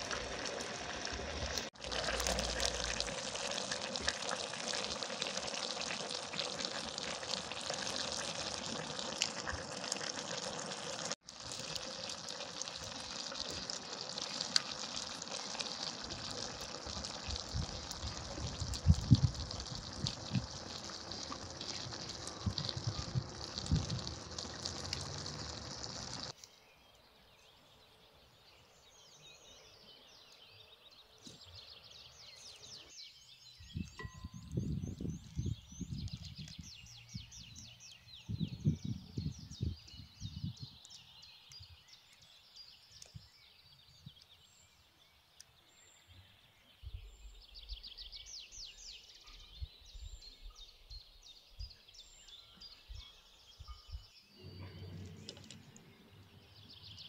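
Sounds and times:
pot boiling: 0.0 - 26.4, 54.4 - 57.0
wood fire crackling: 0.0 - 26.4
bird chirps: 26.4 - 57.0.

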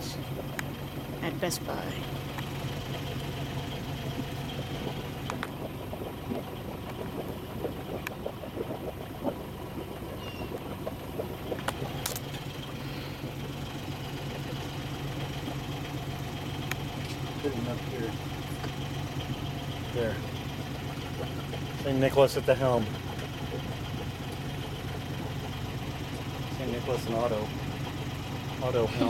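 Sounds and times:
boat engine humming: 0.0 - 29.0.

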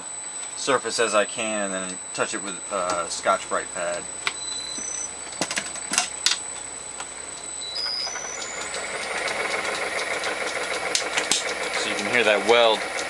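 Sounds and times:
sharp clicks: 7.0 - 13.0
metal lathe cutting steel: 7.9 - 13.0.

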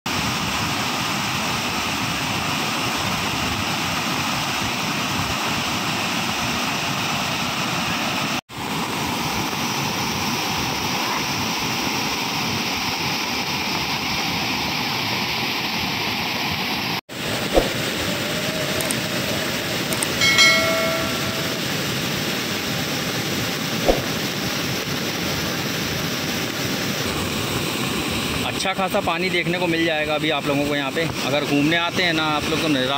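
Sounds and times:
click: 18.8 - 19.0
short bell-like chime: 20.0 - 21.8.

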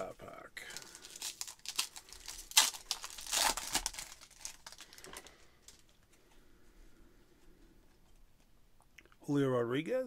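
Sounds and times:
plastic wrapper crinkling and tearing: 0.6 - 5.9.

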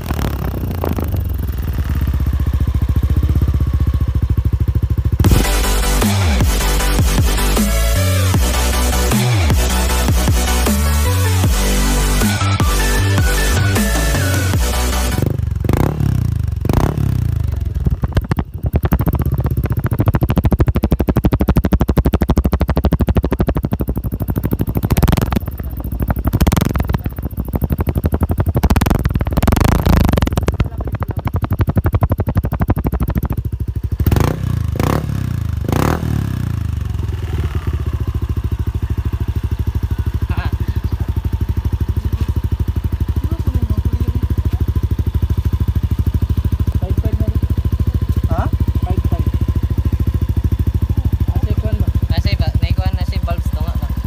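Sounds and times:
scooter engine revving and idling: 0.0 - 54.0.

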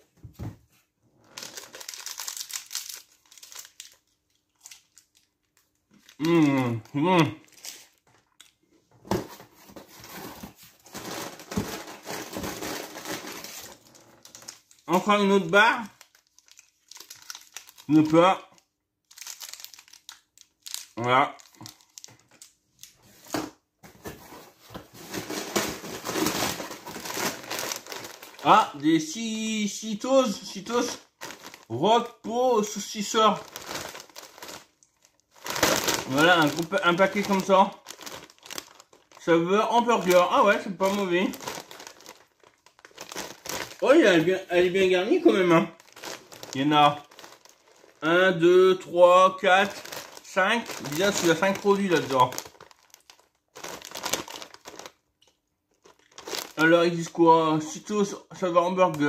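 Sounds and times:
plastic wrapper crinkling: 1.2 - 8.6, 9.2 - 23.4, 24.1 - 57.7
plastic packaging rustling: 1.2 - 57.2.

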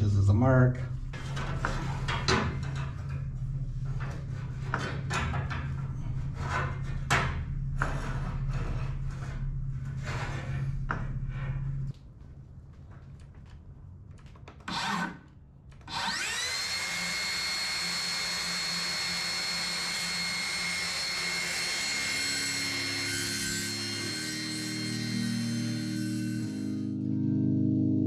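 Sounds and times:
circular saw cutting: 14.7 - 15.2, 15.9 - 27.0.

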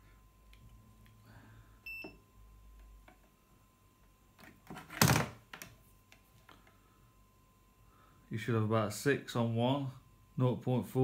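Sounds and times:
multimeter beep: 1.8 - 2.3.

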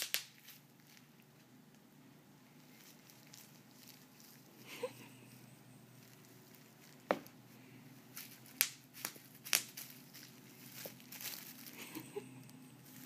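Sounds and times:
bubble wrap snapping: 0.0 - 1.2, 2.7 - 4.8, 8.1 - 13.0.

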